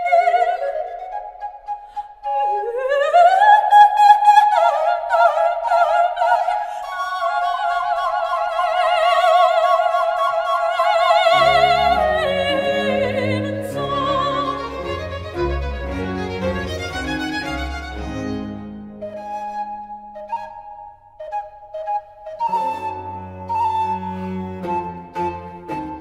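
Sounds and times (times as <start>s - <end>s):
soprano singing: 0.0s - 18.4s
low strings and continuo: 6.4s - 26.0s.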